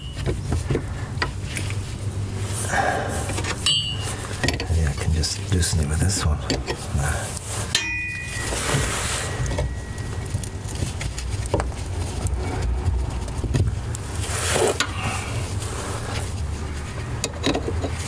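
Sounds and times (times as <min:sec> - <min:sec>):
steady low rumble: 0:00.0 - 0:18.0
metal tool clink: 0:03.6 - 0:04.6, 0:07.7 - 0:10.2
small clicks and scrapes: 0:08.5 - 0:18.0.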